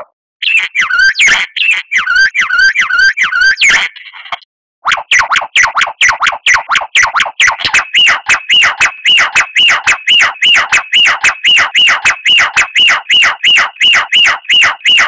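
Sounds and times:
songbird whistled notes: 0:00.5 - 0:03.7
steady high whistle: 0:05.1 - 0:15.0.

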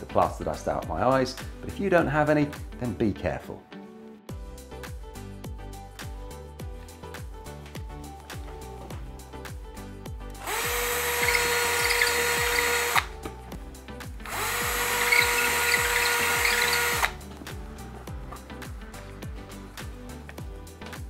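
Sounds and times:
background music: 0:00.0 - 0:21.0
cordless drill boring into wall: 0:10.4 - 0:13.2, 0:14.2 - 0:17.2.

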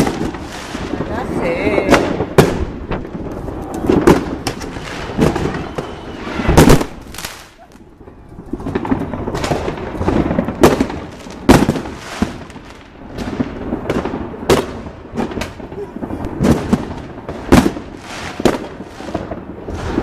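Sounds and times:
loud sharp bangs: 0:00.0 - 0:07.6.

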